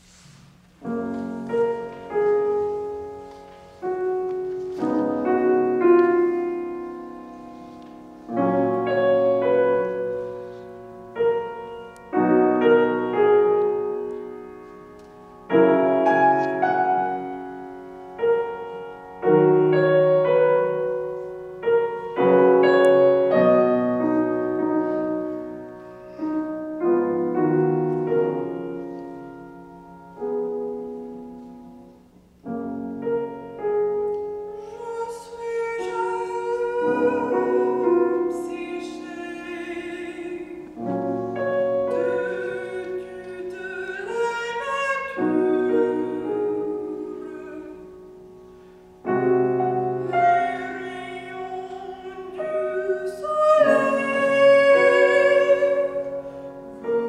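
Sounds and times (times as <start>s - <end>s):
piano chords ringing: 0.0s - 57.0s.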